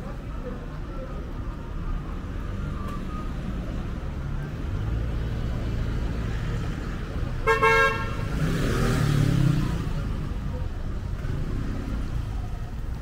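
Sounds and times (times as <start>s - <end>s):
low rumble of street traffic: 0.0s - 13.0s
car horn honk: 7.4s - 8.3s.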